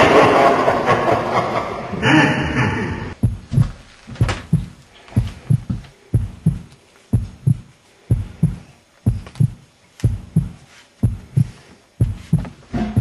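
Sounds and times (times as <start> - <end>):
heartbeat thumps: 3.1 - 13.0.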